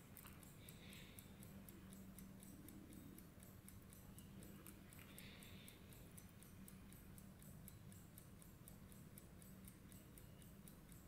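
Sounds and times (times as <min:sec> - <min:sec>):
faint even ticking: 0:00.0 - 0:11.0
low steady hum: 0:00.0 - 0:11.0.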